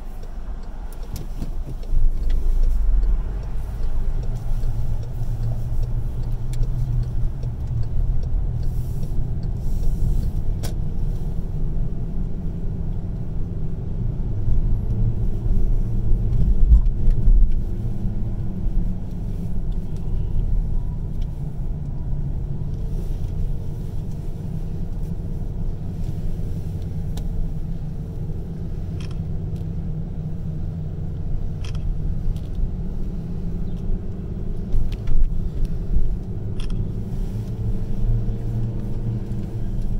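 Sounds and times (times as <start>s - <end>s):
car engine and tyres rumbling: 0.0s - 39.9s
faint clicks: 0.1s - 10.8s.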